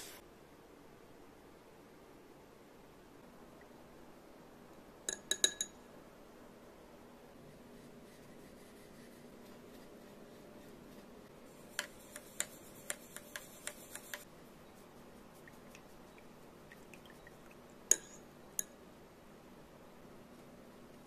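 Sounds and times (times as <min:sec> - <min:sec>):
brush tapping glass rim: 0:11.6 - 0:14.3, 0:15.4 - 0:18.8.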